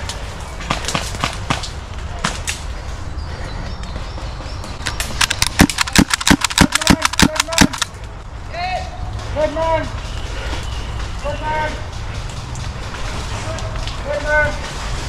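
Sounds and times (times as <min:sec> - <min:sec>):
airsoft guns firing: 0:05.1 - 0:07.9.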